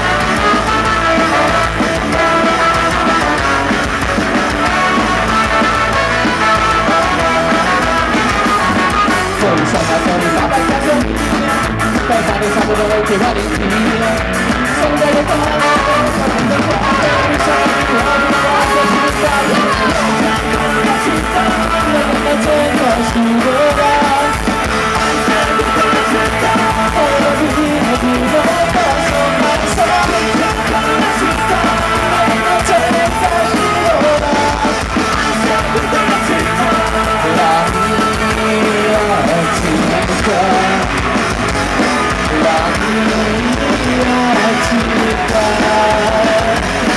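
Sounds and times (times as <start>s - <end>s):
trumpet melody: 0.0s - 10.6s
ska-punk band playing live: 0.0s - 46.9s.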